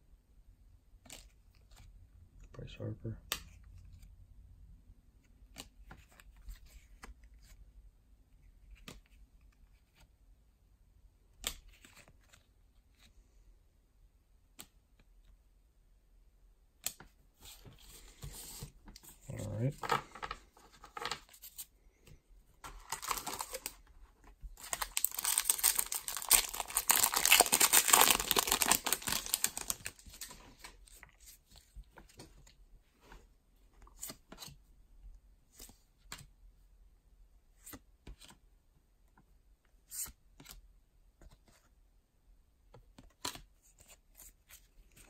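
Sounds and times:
wrapper tearing and crinkling: 0:22.8 - 0:23.7, 0:24.6 - 0:30.3.

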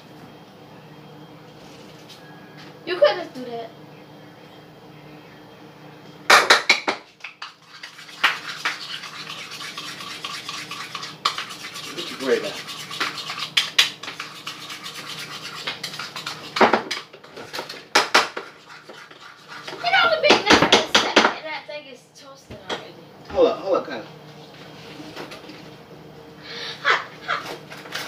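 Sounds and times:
running tap water: 0:07.6 - 0:16.8
dishes clattering in a sink: 0:16.5 - 0:18.5, 0:19.7 - 0:21.4.

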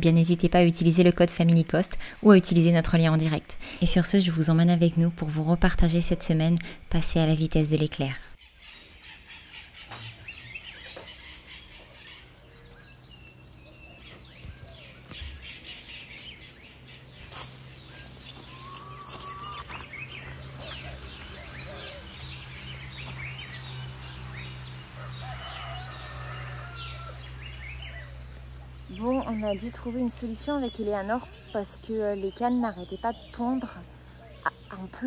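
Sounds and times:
small birds chirping: 0:08.4 - 0:25.1, 0:27.0 - 0:35.0.

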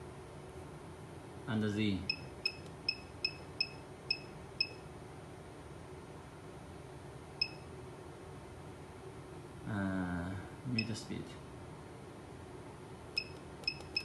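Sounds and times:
short high electronic beeps: 0:13.2 - 0:14.0.

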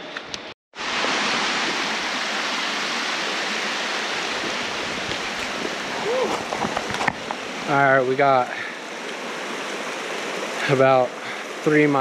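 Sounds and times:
creek water rushing over rock: 0:00.8 - 0:12.0.

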